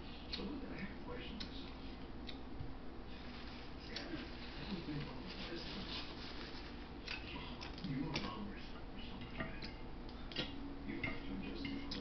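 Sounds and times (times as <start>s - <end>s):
chewing with wet mouth clicks: 1.3s - 2.5s, 7.0s - 8.4s.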